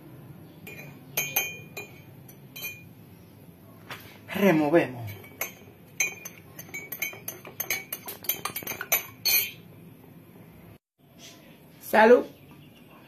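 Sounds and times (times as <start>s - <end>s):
spoon clinking in ceramic mug: 0.6s - 2.9s, 5.1s - 9.6s.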